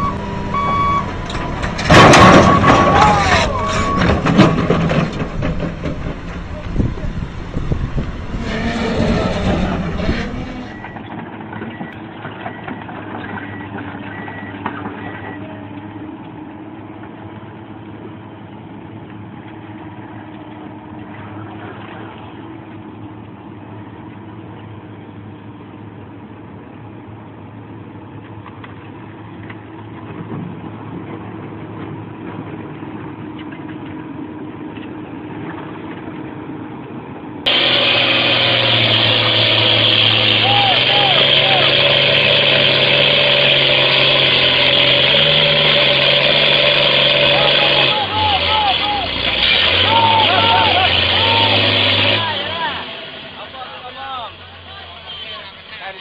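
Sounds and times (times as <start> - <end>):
excavator diesel engine idling: 0.0 - 11.9, 37.5 - 56.0.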